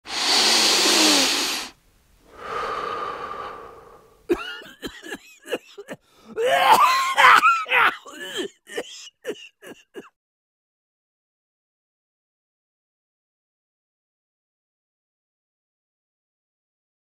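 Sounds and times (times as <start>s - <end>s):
person wheezing breath: 0.1s - 10.1s
person coughing and gasping: 4.3s - 10.2s.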